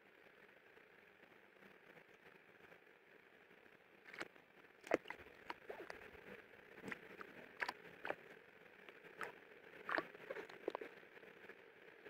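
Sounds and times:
bird splashing water: 0:04.1 - 0:06.1, 0:06.8 - 0:08.3.

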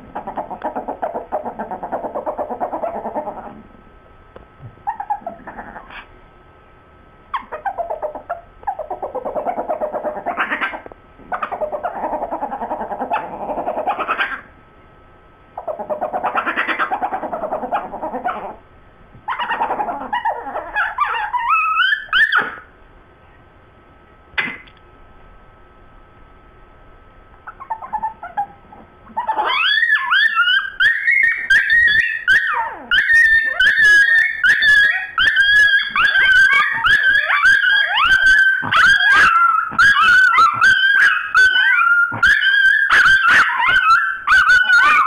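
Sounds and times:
dog whining: 0:00.0 - 0:03.7, 0:04.8 - 0:06.1, 0:07.3 - 0:14.5, 0:15.6 - 0:18.6, 0:19.3 - 0:22.7, 0:27.4 - 0:45.0
dogs growling: 0:00.0 - 0:03.7, 0:04.9 - 0:06.1, 0:07.5 - 0:14.4, 0:19.3 - 0:22.6, 0:27.6 - 0:45.0.

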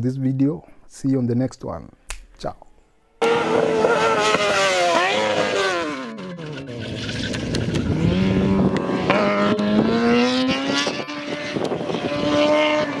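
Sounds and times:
motorcycle engine accelerating: 0:03.2 - 0:13.0.

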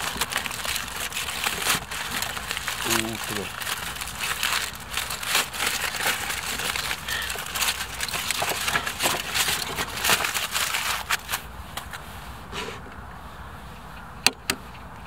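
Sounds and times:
aluminium foil crinkling: 0:00.0 - 0:12.0.

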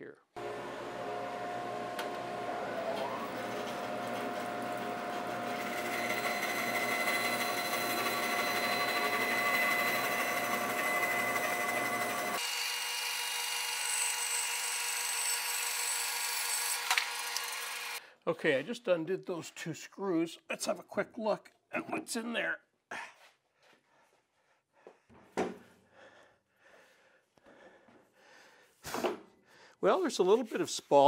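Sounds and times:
bandsaw low hum: 0:00.4 - 0:12.4
bandsaw cutting whine: 0:00.4 - 0:18.0.

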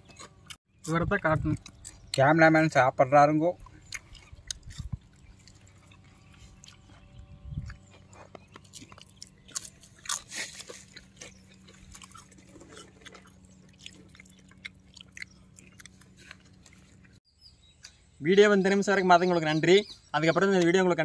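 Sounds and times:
person chewing crunchy chips: 0:00.0 - 0:02.3, 0:03.5 - 0:17.2.

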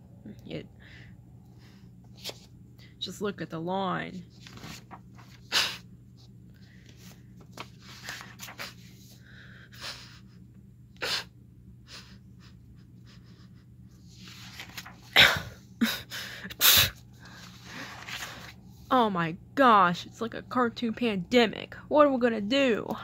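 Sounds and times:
person sniffling: 0:05.5 - 0:05.8, 0:15.2 - 0:17.5.

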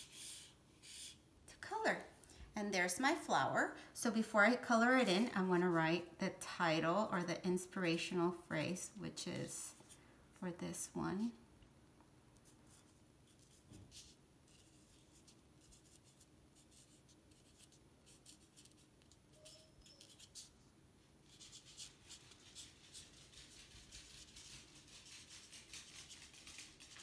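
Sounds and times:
marker scratching on paper: 0:00.0 - 0:01.2, 0:12.4 - 0:20.5, 0:21.2 - 0:25.9.

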